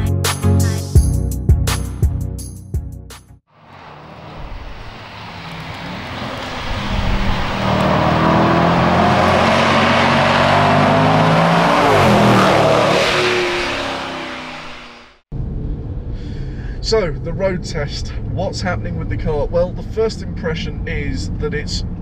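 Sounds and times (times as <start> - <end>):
car engine passing by: 3.5 - 16.5.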